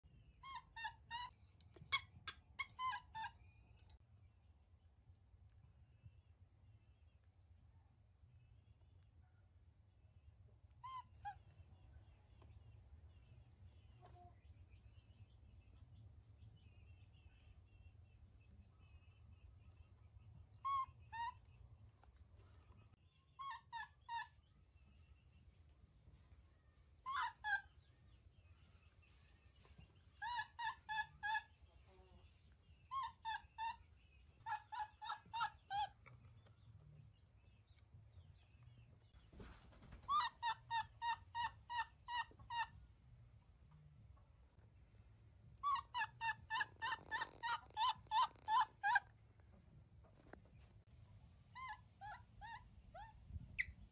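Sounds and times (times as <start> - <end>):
baby monkey crying: 0.4 - 1.3, 23.4 - 24.4, 27.1 - 27.7, 30.2 - 31.5, 32.9 - 33.8, 34.5 - 36.0, 40.1 - 42.7, 45.6 - 49.1, 51.6 - 53.2.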